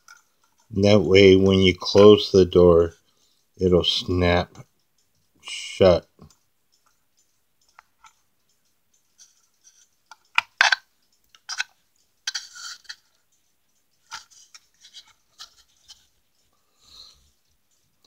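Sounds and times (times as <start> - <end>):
hands handling wooden clock: 9.2 - 13.2, 14.0 - 16.5.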